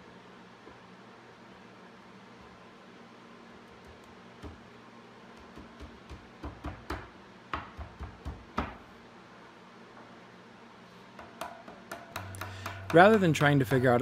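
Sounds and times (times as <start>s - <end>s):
faint steady hum: 0.0s - 14.0s
wooden boards knocking: 11.4s - 13.6s.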